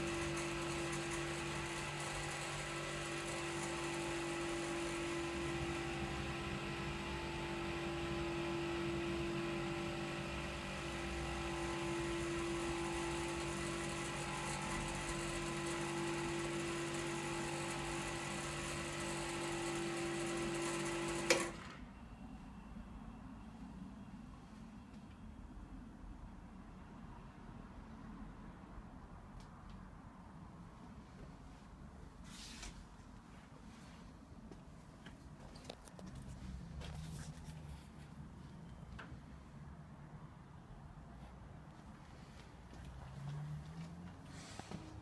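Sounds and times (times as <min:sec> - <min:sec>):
air compressor motor hum: 0:00.0 - 0:21.7.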